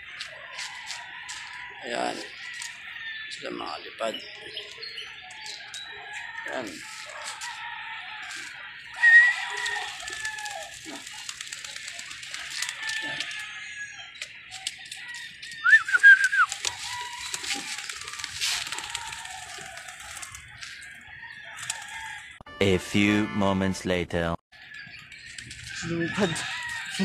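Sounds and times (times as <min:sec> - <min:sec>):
roosters crowing: 0:00.0 - 0:22.4, 0:24.6 - 0:27.0.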